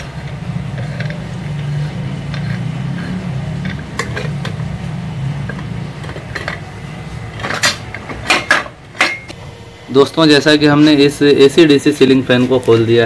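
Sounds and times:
screw puller low rumble: 0.0s - 8.0s
metal parts clanking: 3.6s - 4.6s, 7.4s - 9.3s.

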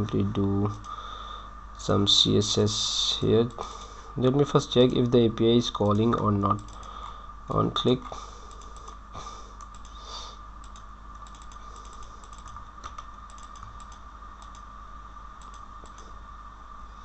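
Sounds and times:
faint steady whine: 0.0s - 17.0s
keyboard typing clicks: 9.6s - 10.0s, 10.6s - 14.7s, 15.4s - 16.1s.

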